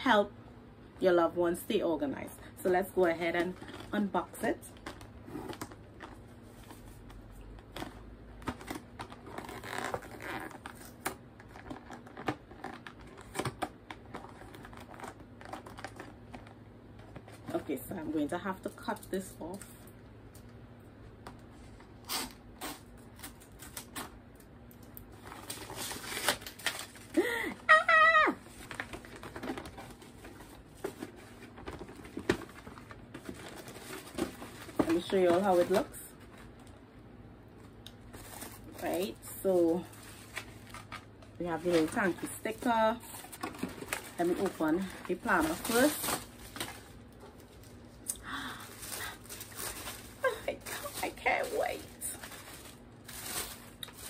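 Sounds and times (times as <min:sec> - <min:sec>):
packaging rustle: 0:04.7 - 0:17.6, 0:24.7 - 0:36.8, 0:38.1 - 0:54.0.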